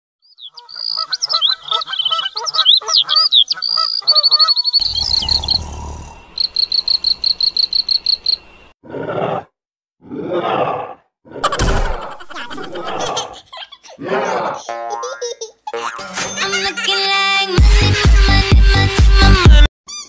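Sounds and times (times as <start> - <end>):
birds chirping and twittering: 0.2 - 8.7
short rasping snore: 4.8 - 6.2
rapid evenly spaced chirps: 6.3 - 8.6.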